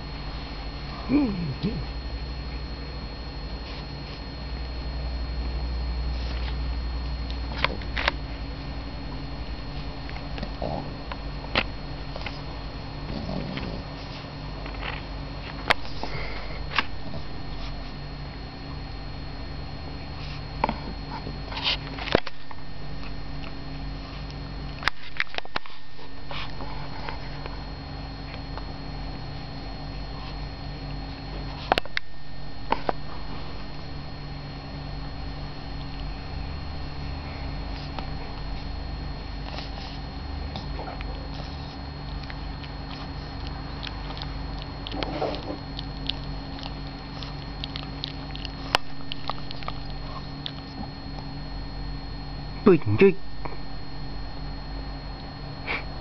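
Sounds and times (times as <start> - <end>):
steady low hum: 0.0 - 56.0
dog sniffing and chewing cloth: 36.7 - 51.4.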